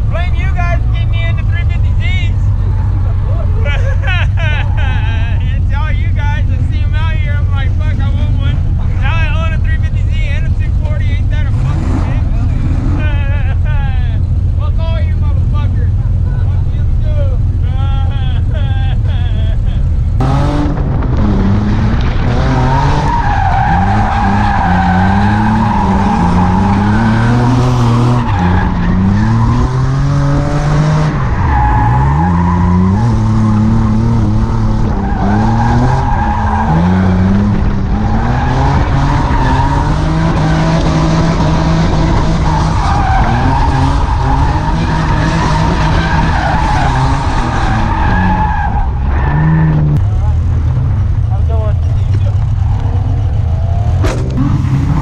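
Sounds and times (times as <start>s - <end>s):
car engine revving: 0.0s - 55.0s
tyres squealing: 22.5s - 50.0s.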